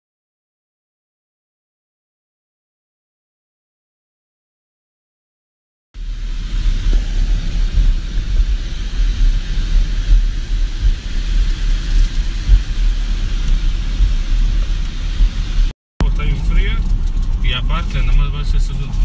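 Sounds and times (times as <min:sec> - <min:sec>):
wind hiss: 0:06.0 - 0:15.7
road noise low rumble: 0:06.0 - 0:19.0.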